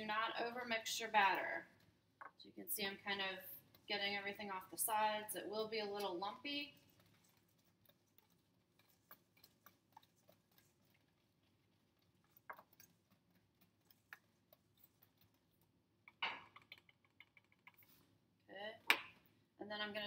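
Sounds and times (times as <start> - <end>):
whisk scraping bowl: 2.9 - 15.9.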